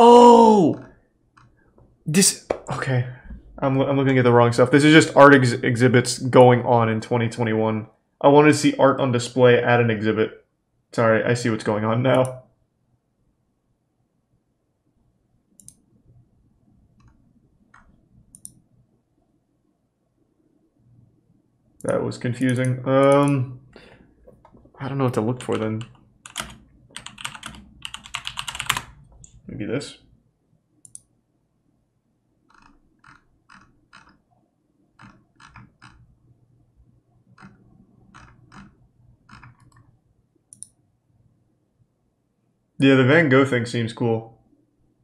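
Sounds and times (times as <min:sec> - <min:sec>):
low room hum: 0:00.0 - 0:45.0
computer mouse clicks: 0:15.6 - 0:15.8, 0:17.0 - 0:18.6, 0:30.8 - 0:31.1, 0:32.5 - 0:34.2, 0:35.0 - 0:36.0, 0:37.4 - 0:40.8.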